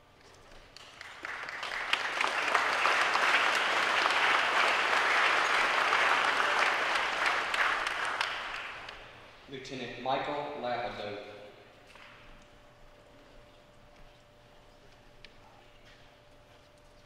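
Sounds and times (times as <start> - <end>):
audience applauding: 0.8 - 9.2.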